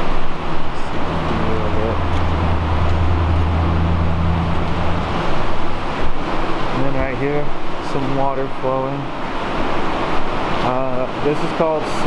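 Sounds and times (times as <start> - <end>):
low steady hum: 0.0 - 8.2
rushing noise in tunnel: 0.0 - 10.7.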